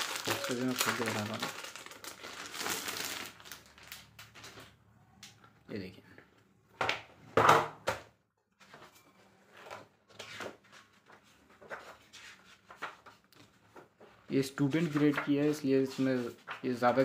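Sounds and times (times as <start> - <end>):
paper pages rustling: 9.6 - 17.0.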